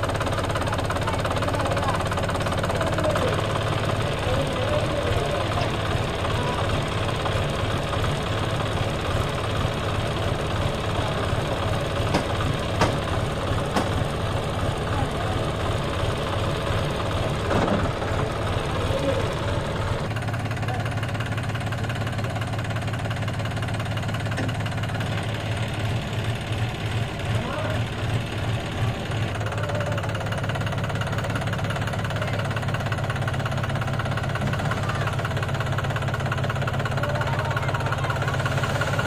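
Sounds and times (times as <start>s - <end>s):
tractor diesel engine knocking: 0.0s - 39.0s.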